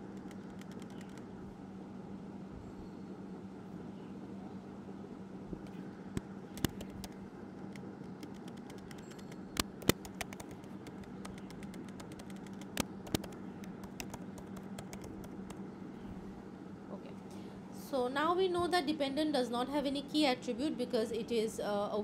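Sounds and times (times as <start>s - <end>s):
typing on keyboard: 0.0s - 1.3s, 8.1s - 15.6s
steady low hum: 0.0s - 22.0s.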